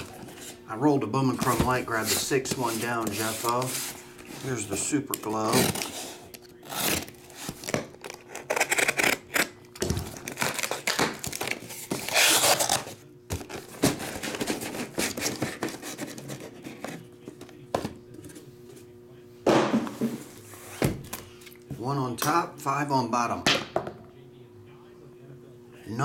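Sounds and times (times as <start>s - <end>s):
cardboard rustling and scraping: 0.0s - 9.0s, 9.9s - 18.4s.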